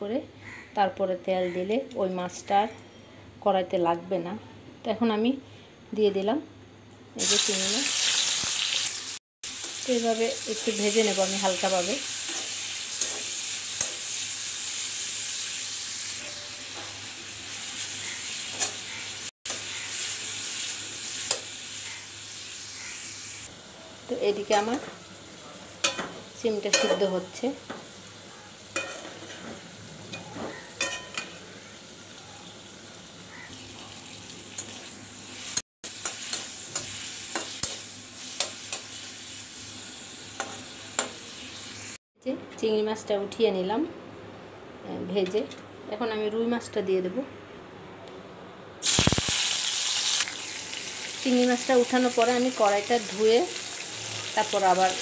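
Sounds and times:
shrimp sizzling in hot oil: 0:07.2 - 0:42.0, 0:48.8 - 0:55.0
metal spatula knocking pan: 0:26.7 - 0:27.2.

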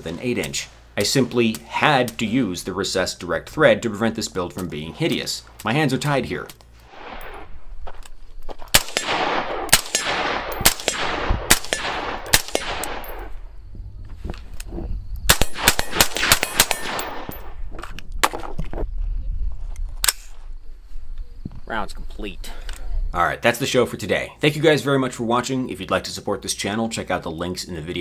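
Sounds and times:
suppressed gunshots with echo: 0:08.7 - 0:13.3, 0:15.3 - 0:17.5.

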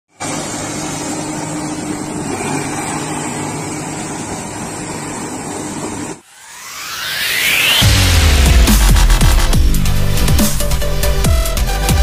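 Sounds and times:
excavator diesel engine running: 0:00.2 - 0:06.2
machine moving through water: 0:00.2 - 0:06.2.

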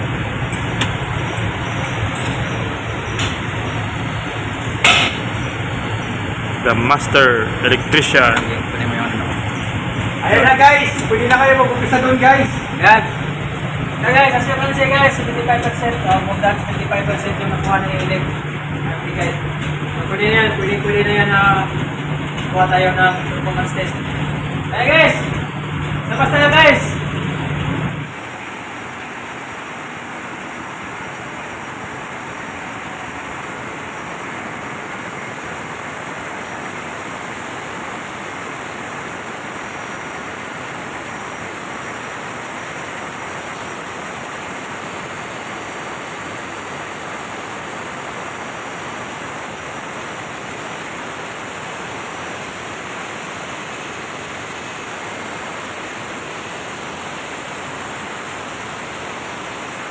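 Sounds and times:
diesel generator engine running: 0:00.0 - 0:59.9.

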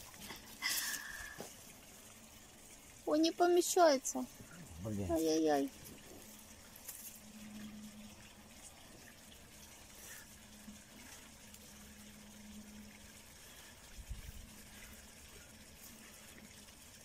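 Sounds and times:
faint steady hiss: 0:00.0 - 0:17.0
low hum: 0:04.2 - 0:17.0.

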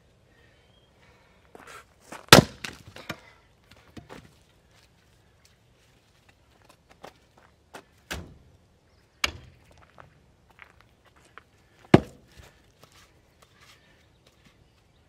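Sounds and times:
firewood dropped onto woodpile: 0:02.1 - 0:04.4
log set down on chopping block: 0:02.3 - 0:03.2, 0:11.9 - 0:12.2.

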